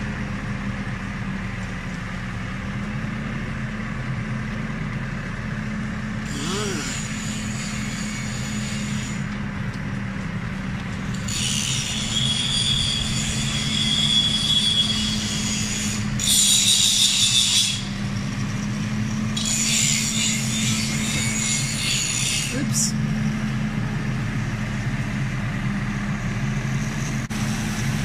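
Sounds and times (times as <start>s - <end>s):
vehicle engine running: 0.0s - 15.3s, 17.8s - 19.4s, 22.6s - 28.0s
high-pitched squealing: 6.3s - 9.2s, 11.1s - 18.1s, 19.3s - 23.0s.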